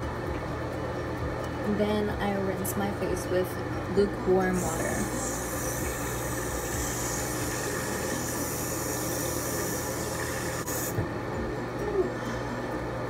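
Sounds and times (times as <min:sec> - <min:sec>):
sink tap running: 0:04.5 - 0:11.0.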